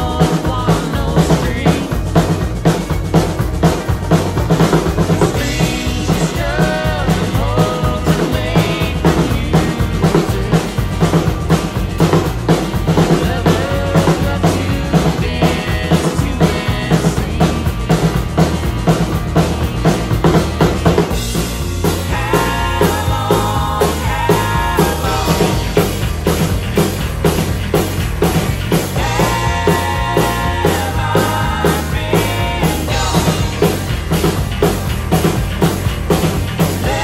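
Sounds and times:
drum kit beat with cymbals: 0.0s - 37.0s
recorded country band track: 0.0s - 37.0s.

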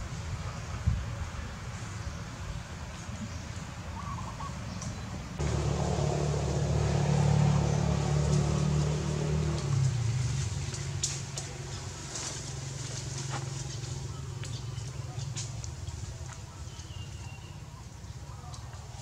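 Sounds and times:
low engine hum: 4.7s - 19.0s.

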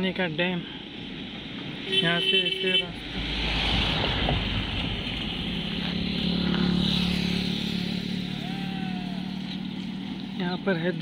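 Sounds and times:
wind and road noise: 0.0s - 11.0s
engine hum: 2.8s - 11.0s.

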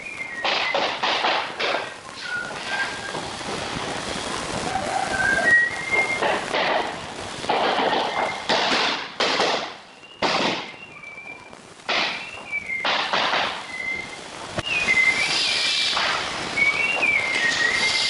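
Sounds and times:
thin high whistle: 0.0s - 1.0s, 2.1s - 3.3s, 4.7s - 6.4s, 9.9s - 18.0s
hammer knocking floor planks: 0.4s - 1.9s, 7.5s - 10.7s.

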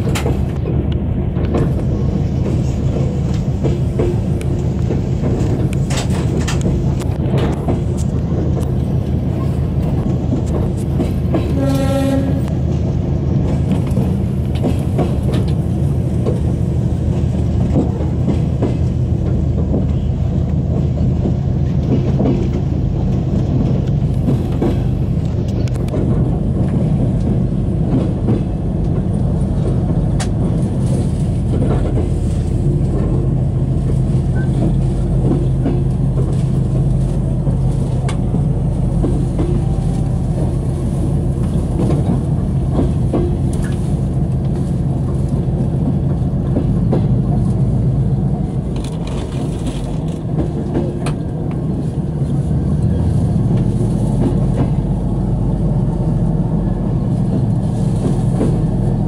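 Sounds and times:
train rumbling on rails: 0.0s - 59.0s
train horn blast: 11.4s - 12.7s.

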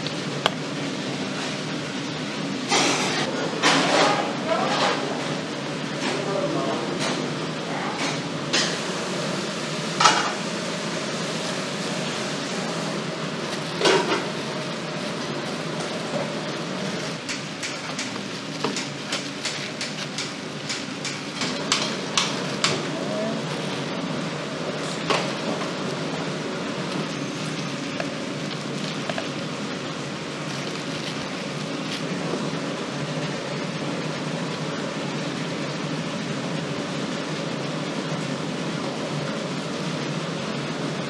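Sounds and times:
kitchen background noise: 0.0s - 41.0s.

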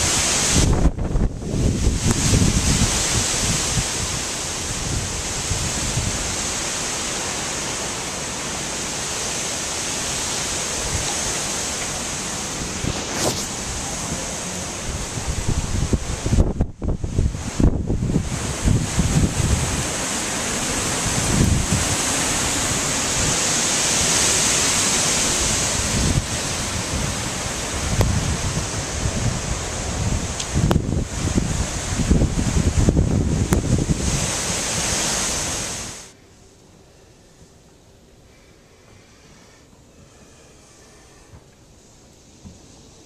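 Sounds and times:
wind buffeting microphone: 0.0s - 6.8s, 10.2s - 36.1s
wind and rain rushing: 0.0s - 43.0s.

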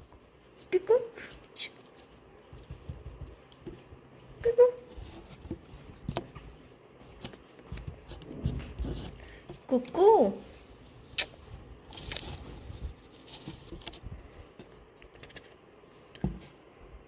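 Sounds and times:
hand scratching cardboard box: 7.2s - 9.2s.

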